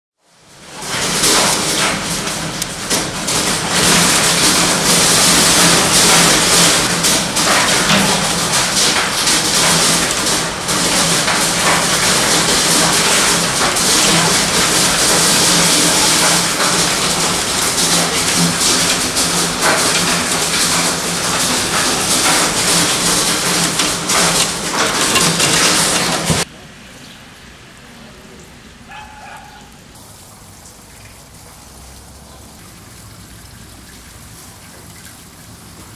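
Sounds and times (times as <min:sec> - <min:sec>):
heavy rain and hail pelting: 0:00.2 - 0:26.5.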